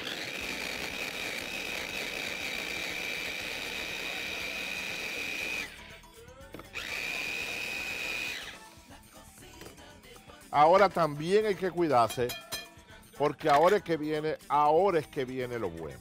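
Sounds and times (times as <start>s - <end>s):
kitchen chopper motor whining: 0.0s - 5.8s, 6.5s - 8.8s.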